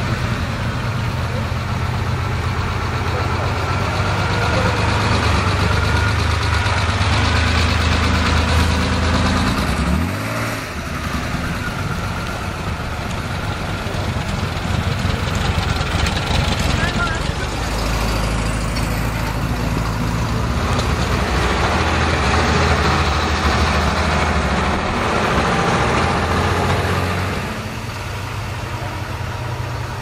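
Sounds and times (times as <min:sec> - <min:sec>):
car engine idling: 0:00.0 - 0:30.0
road noise: 0:00.0 - 0:30.0.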